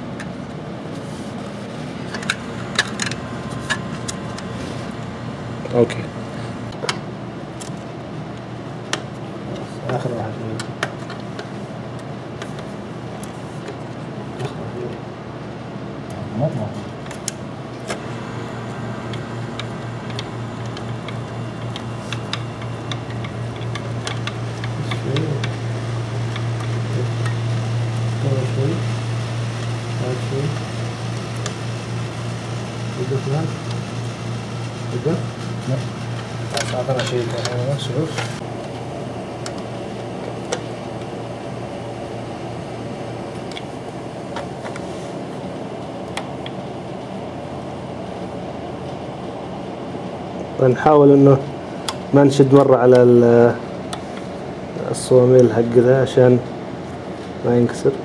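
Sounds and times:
steady low hum: 0:00.0 - 0:58.0
hands clicking and tapping hardware: 0:19.1 - 0:25.6.

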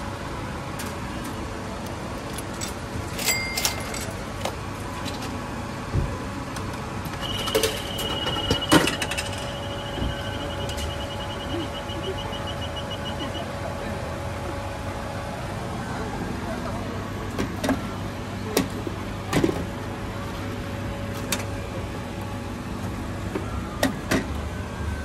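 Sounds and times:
steady machine hum: 0:00.0 - 0:23.7
coins clinking into machine: 0:02.2 - 0:04.6, 0:07.2 - 0:09.9
rapid machine beeps: 0:07.2 - 0:13.6.

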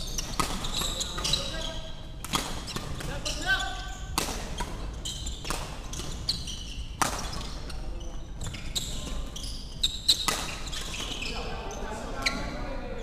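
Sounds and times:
shoe squeaks on wooden floor: 0:00.0 - 0:12.7
racket striking shuttlecock: 0:10.1 - 0:11.1.

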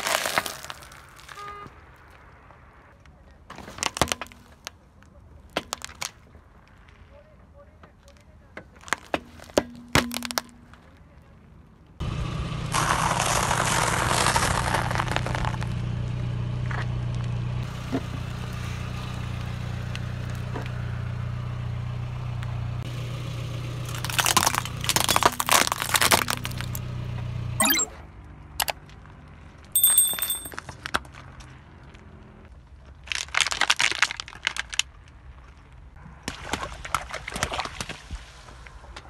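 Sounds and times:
objects snapping under tyre: 0:00.0 - 0:01.4, 0:03.5 - 0:06.8, 0:08.1 - 0:11.0, 0:12.7 - 0:15.7, 0:23.9 - 0:26.8, 0:33.0 - 0:35.2
tyre rolling on asphalt: 0:08.2 - 0:11.0
car engine hum: 0:11.8 - 0:27.6.

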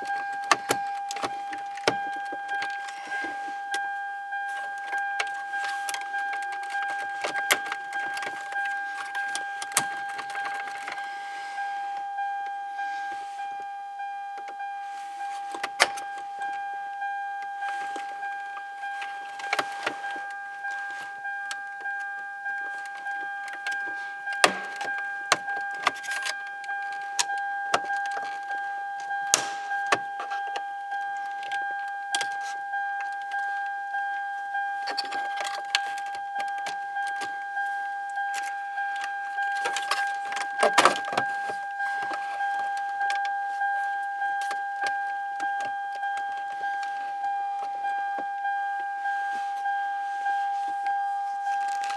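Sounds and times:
car warning chime dinging: 0:00.0 - 0:51.9
plastic clicks and scrapes: 0:04.5 - 0:11.7, 0:19.0 - 0:30.6, 0:34.8 - 0:37.4, 0:38.3 - 0:48.0, 0:51.4 - 0:51.9.

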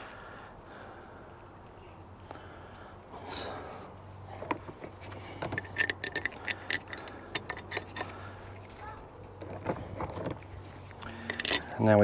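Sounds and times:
small metal parts clicking: 0:04.4 - 0:11.8.

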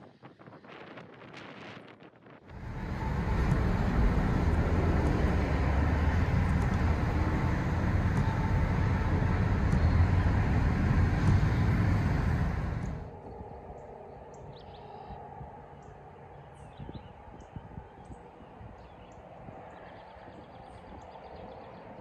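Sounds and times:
road and wind noise in car: 0:02.5 - 0:22.0.

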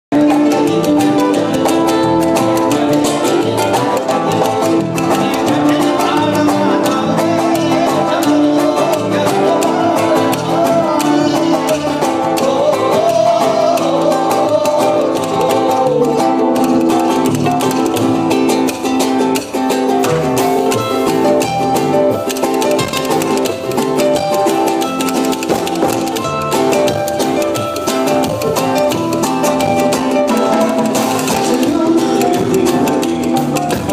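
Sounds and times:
acoustic-electric guitar: 0:00.1 - 0:33.9
man singing into a microphone: 0:02.6 - 0:17.9, 0:30.3 - 0:33.9.

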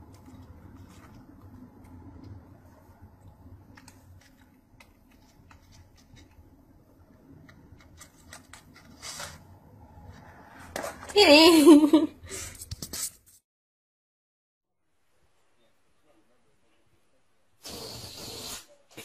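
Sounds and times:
low steady hum: 0:00.0 - 0:12.5.

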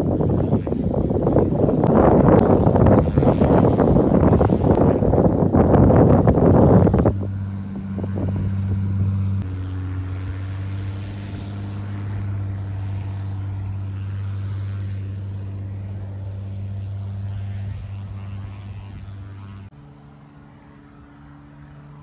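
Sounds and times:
distant propeller plane engine: 0:00.0 - 0:22.0.

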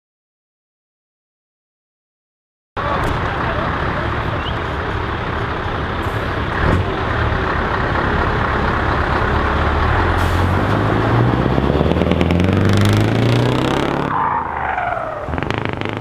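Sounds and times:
truck engine accelerating: 0:02.8 - 0:16.0.

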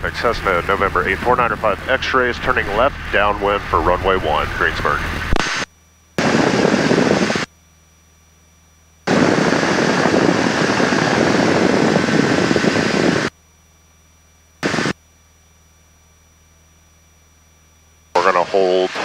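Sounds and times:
radio squelch hiss bursts: 0:05.0 - 0:07.5, 0:14.6 - 0:15.0
faint steady low hum: 0:13.4 - 0:19.0.

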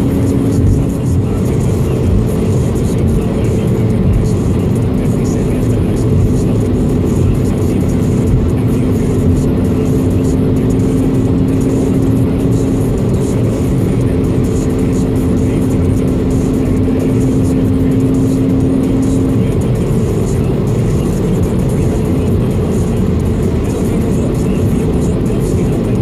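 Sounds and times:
car road and engine rumble: 0:00.0 - 0:26.0
steady low hum: 0:00.0 - 0:26.0.

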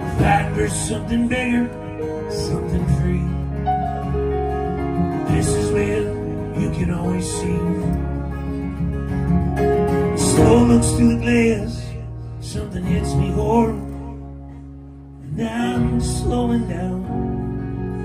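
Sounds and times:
bowed fiddle melody: 0:00.0 - 0:12.2
strummed acoustic guitar: 0:00.0 - 0:18.0.

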